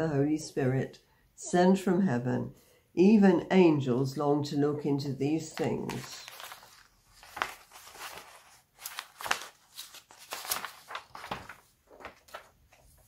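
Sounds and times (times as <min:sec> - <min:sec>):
soft rustling: 0:05.6 - 0:13.0.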